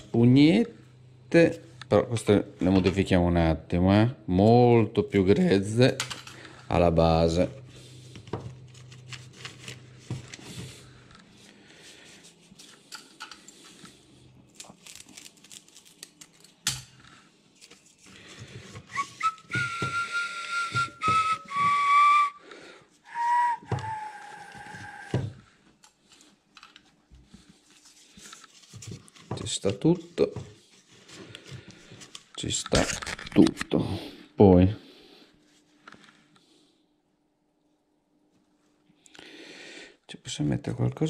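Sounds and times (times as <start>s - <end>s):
person whistling high notes: 18.9s - 22.4s, 23.0s - 25.4s
faint clicks and rustles: 25.8s - 33.5s.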